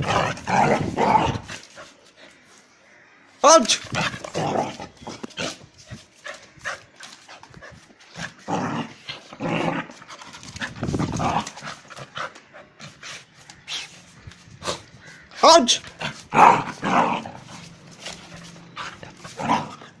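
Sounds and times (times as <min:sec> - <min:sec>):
light clicks and scuffs: 0:05.1 - 0:08.4, 0:17.4 - 0:19.4.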